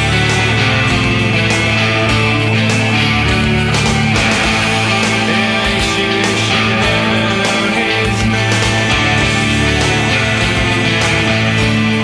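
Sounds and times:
bass guitar: 0.0s - 12.0s
electric guitars: 0.0s - 12.0s.

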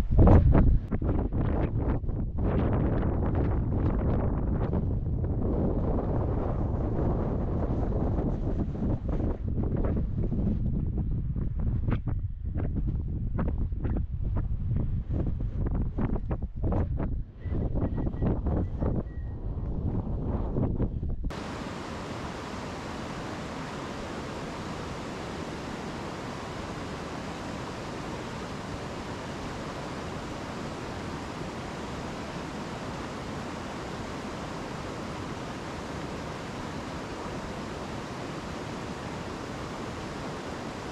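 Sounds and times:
wind rumble on microphone: 0.0s - 40.9s
stream rushing over rocks: 21.3s - 40.9s.

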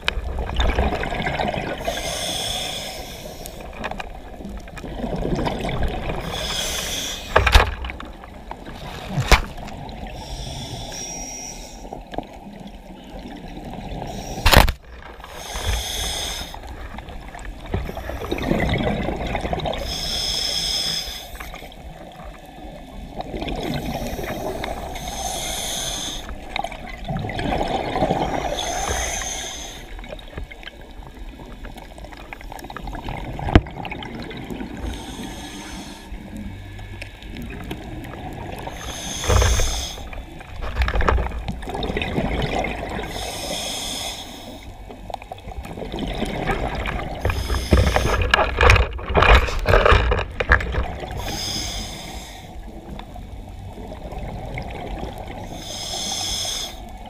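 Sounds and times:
diver breathing through regulator: 1.7s - 3.7s, 6.0s - 7.7s, 10.0s - 12.0s, 14.0s - 17.0s, 19.6s - 21.7s, 23.4s - 26.7s, 28.0s - 30.2s, 34.7s - 36.7s, 38.5s - 40.9s, 42.9s - 44.9s, 46.7s - 53.0s, 55.4s - 57.0s.

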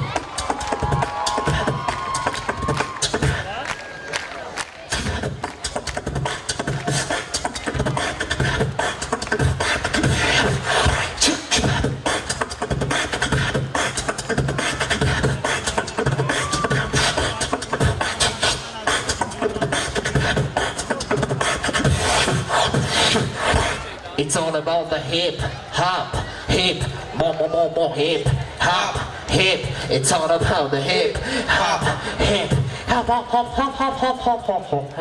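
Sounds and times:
beatboxing into a microphone: 0.0s - 35.0s.

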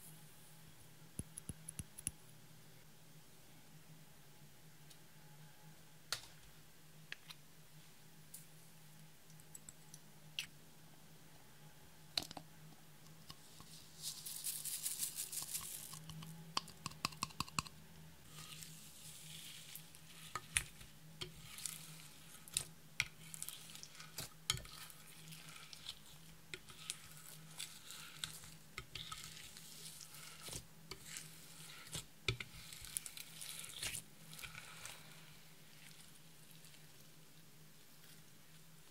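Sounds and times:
slime squishing and crackling: 18.3s - 36.8s.

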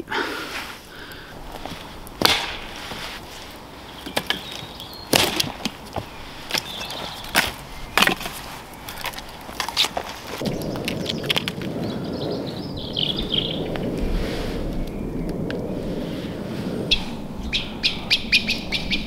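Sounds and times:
dead sticks snapping: 1.1s - 11.7s.

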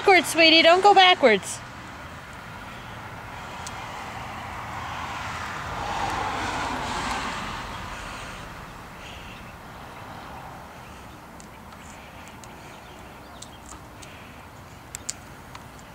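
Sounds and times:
car driving past: 2.6s - 11.2s.

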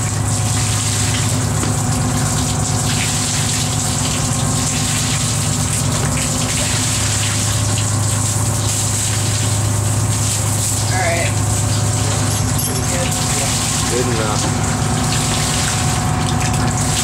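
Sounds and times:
boat machinery humming: 0.0s - 17.0s
water gushing from hose: 0.0s - 17.0s.

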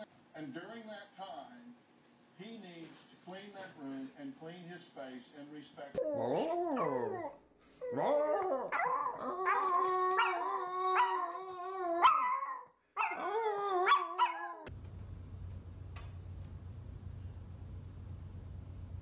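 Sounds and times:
small dog howling: 6.0s - 14.7s.

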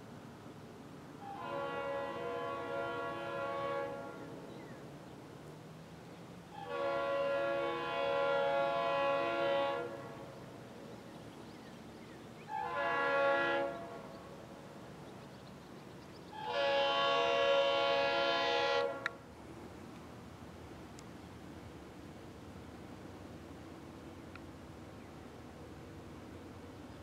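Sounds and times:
locomotive air horn blasts: 1.2s - 4.4s, 6.5s - 10.4s, 12.5s - 14.1s, 16.3s - 19.2s.

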